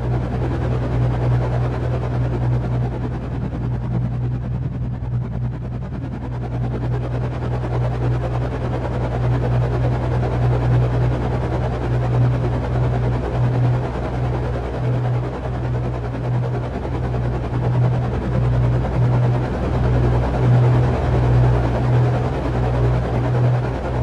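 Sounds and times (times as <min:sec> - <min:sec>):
low engine drone: 0:00.0 - 0:24.0.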